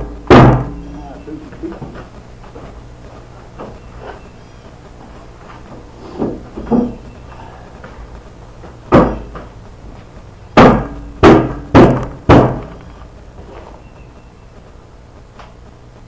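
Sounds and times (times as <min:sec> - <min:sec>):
heavy metallic thuds: 0:00.0 - 0:00.9, 0:08.7 - 0:09.6, 0:10.5 - 0:12.8.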